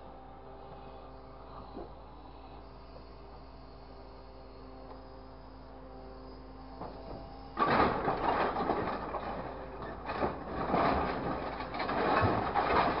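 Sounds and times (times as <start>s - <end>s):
scrap metal clattering and scraping: 7.6s - 13.0s.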